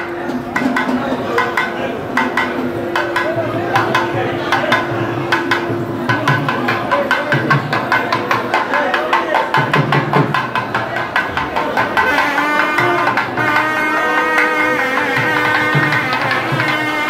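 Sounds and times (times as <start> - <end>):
fast steady drumming: 0.0 - 17.0
reed pipe long notes: 12.0 - 17.0.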